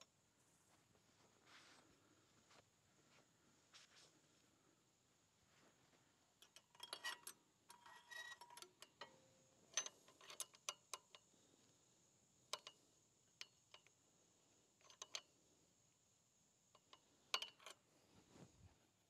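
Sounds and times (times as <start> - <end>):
metal engine parts clicking: 6.4 - 11.3, 12.5 - 12.8, 13.4 - 14.0, 14.8 - 15.3, 16.8 - 17.8.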